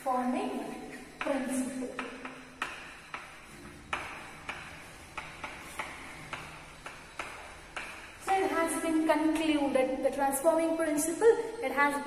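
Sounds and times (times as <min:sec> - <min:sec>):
chalk tapping and scraping on chalkboard: 0:00.9 - 0:09.2.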